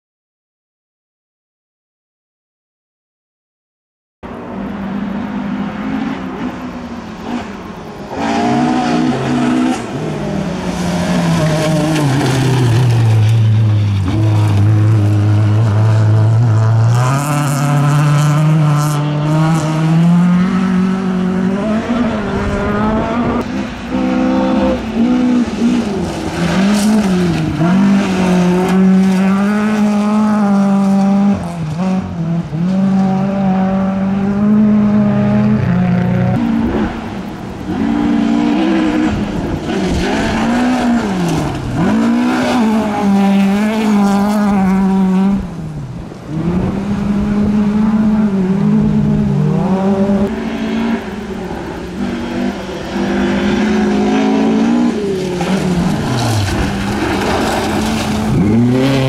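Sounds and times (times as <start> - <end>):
rally car engines revving: 4.2 - 59.0
tyres sliding on gravel: 10.0 - 15.1, 55.0 - 59.0.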